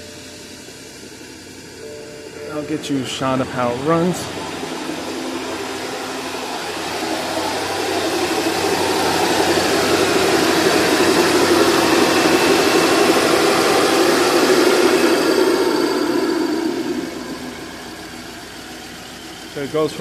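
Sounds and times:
car engine idling fast: 0.0 - 20.0.

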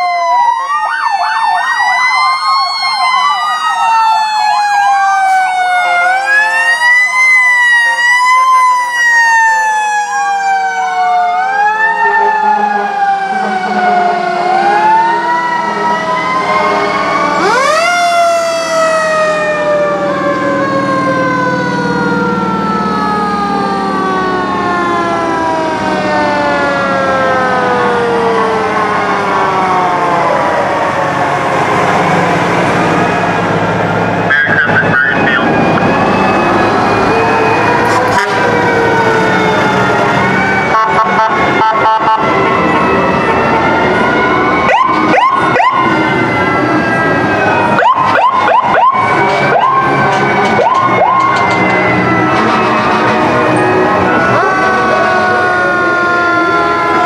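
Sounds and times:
fire truck sirens: 0.0 - 57.0
diesel engine rumble: 12.4 - 57.0.

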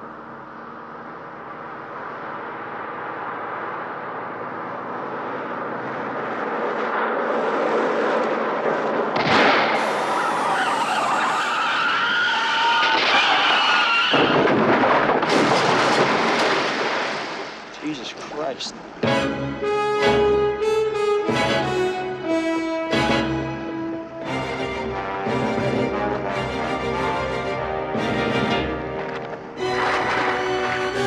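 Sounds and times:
car approaching: 0.0 - 14.2, 17.4 - 31.0
loud crash: 9.2 - 10.6, 12.8 - 17.7
tyres screeching: 10.0 - 14.4.

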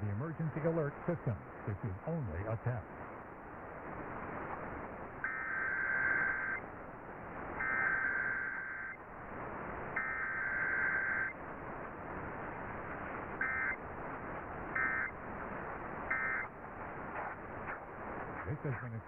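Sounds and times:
radio static hiss: 0.0 - 19.0
warbling digital data bursts: 5.1 - 6.8, 7.4 - 19.0.

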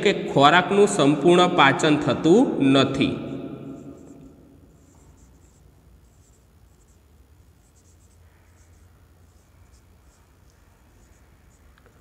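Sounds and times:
low steady hum: 0.9 - 12.0
marker squeaking on whiteboard: 3.7 - 12.0.

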